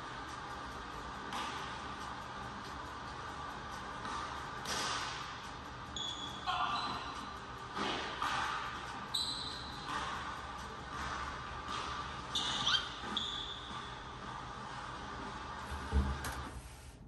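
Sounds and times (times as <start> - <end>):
sneaker squeaks: 5.9 - 10.3, 11.7 - 14.2.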